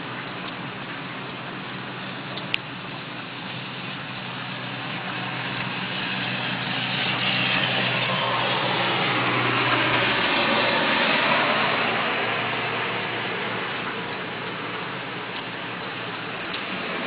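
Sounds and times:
motor vehicle passing: 3.6s - 17.0s.

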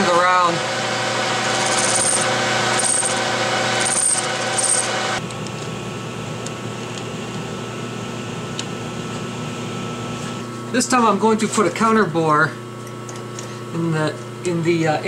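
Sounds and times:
high whine of metal cutting: 0.0s - 5.2s
lathe motor and gear hum: 0.0s - 5.6s.

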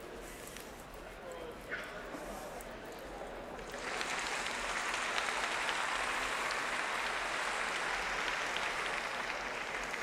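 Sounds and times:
audience applause: 3.6s - 10.0s.

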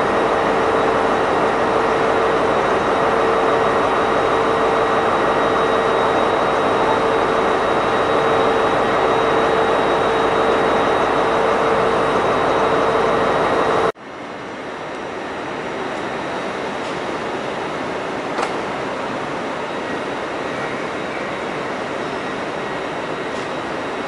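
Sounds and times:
steady whine: 0.0s - 14.0s.

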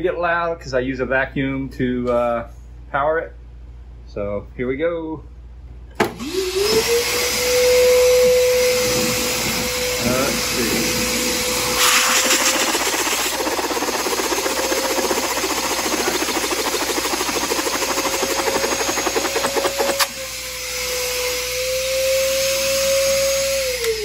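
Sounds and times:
vacuum cleaner whine: 6.0s - 24.0s.

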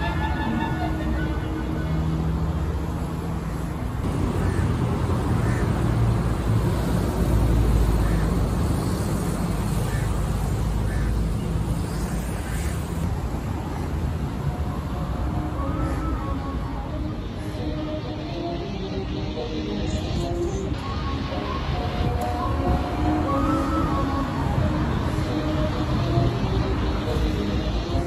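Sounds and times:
cars passing: 0.0s - 28.0s.

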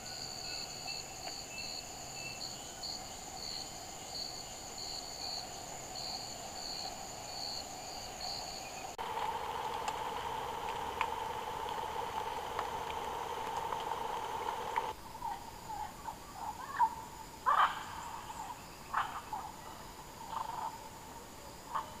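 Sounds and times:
high insect drone: 0.0s - 21.9s
night animal chorus trilling: 4.9s - 20.8s.

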